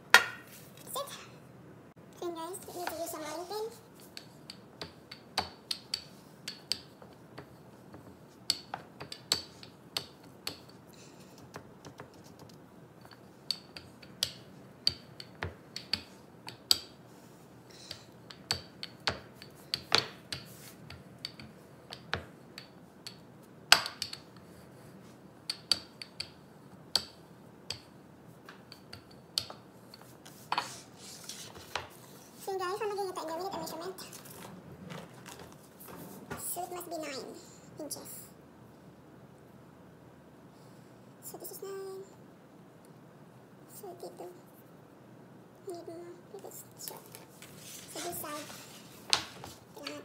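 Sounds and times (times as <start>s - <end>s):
rolling pin rubbing dough: 29.9s - 32.5s, 47.3s - 50.0s.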